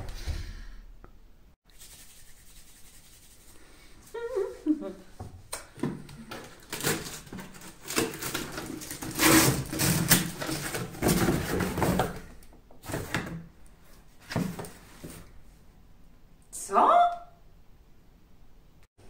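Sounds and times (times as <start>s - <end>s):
packing tape tearing: 6.5s - 12.2s
cardboard flaps rustling: 6.5s - 13.4s
cardboard scraping and knocking: 6.8s - 13.4s.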